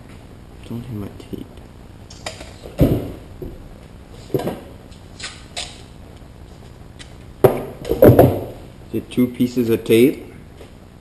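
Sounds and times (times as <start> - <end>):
knocks and rustles: 2.2 - 3.6, 7.4 - 8.7.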